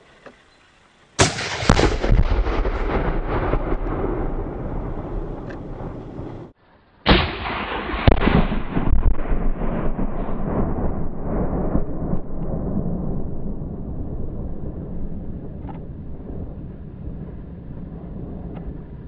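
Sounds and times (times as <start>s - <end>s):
long rolling rumble: 0.9s - 19.0s
rifle shot crack: 1.2s - 6.5s, 7.1s - 13.4s
heavy explosive blast: 1.2s - 17.2s.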